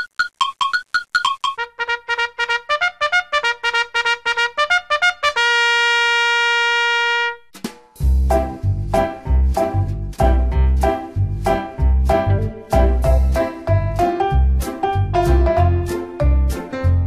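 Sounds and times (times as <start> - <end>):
music with strong bass beat: 7.6 - 14.6.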